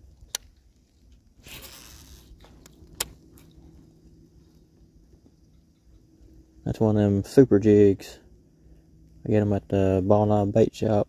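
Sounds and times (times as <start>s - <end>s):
faint low hum: 0.0s - 11.0s
sharp clicks of gear: 0.2s - 3.6s
scraping rustle: 0.8s - 3.7s
faint ticks: 4.5s - 6.4s.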